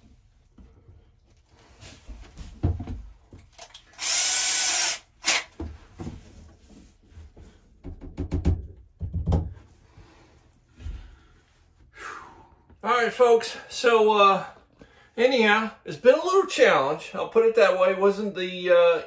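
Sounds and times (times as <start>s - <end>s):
handling knocks and bumps: 2.0s - 3.6s, 5.5s - 9.7s
cordless drill driving a screw: 3.6s - 5.5s.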